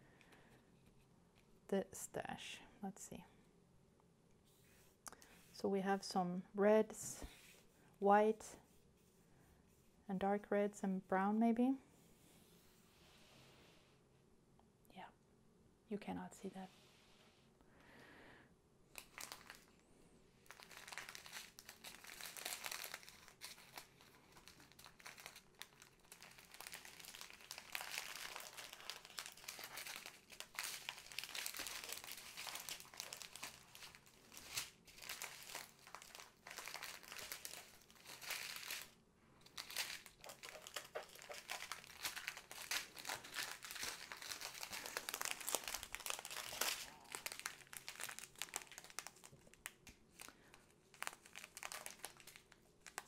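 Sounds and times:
plastic wrapping crinkling: 18.9s - 19.7s, 20.4s - 53.0s.

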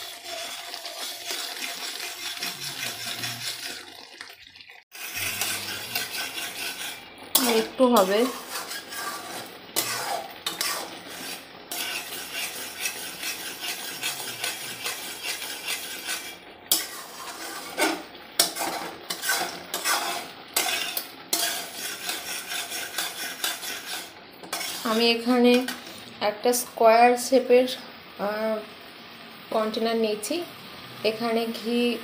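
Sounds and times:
metal spatula scraping a pan: 0.0s - 4.1s, 4.9s - 26.0s.

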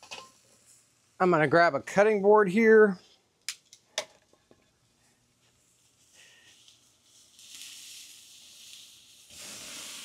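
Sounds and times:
steak sizzling on grill: 5.9s - 10.0s.

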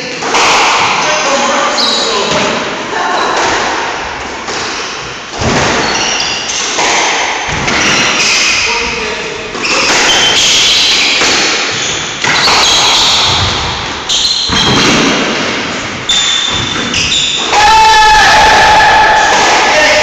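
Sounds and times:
squash ball hitting walls: 0.2s - 1.2s, 2.2s - 8.6s, 9.5s - 17.6s
shoe squeaks on wooden floor: 1.6s - 2.4s, 5.7s - 6.8s, 7.7s - 15.1s, 16.0s - 17.5s.

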